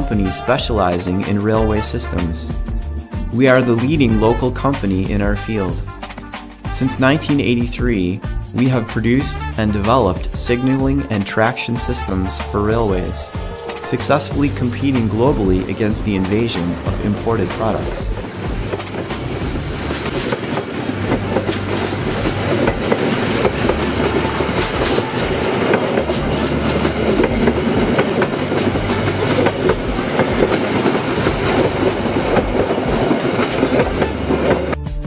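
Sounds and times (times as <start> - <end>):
train rolling rumble: 8.4 - 34.8
wheels clicking on rails: 11.4 - 34.8.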